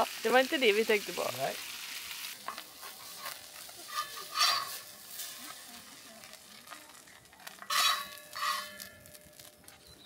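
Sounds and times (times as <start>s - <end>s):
food frying in a pan: 0.0s - 10.0s
spatula lifting food: 2.2s - 5.7s, 7.5s - 9.0s.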